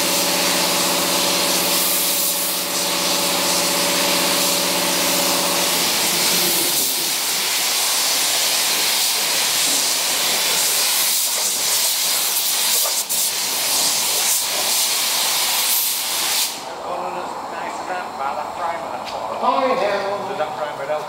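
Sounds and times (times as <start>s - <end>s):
paint spray gun hissing: 0.0s - 16.7s.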